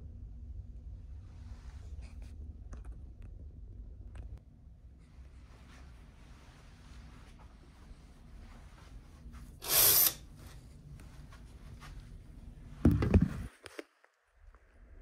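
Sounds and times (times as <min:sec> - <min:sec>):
low rumbling: 0:00.0 - 0:09.1.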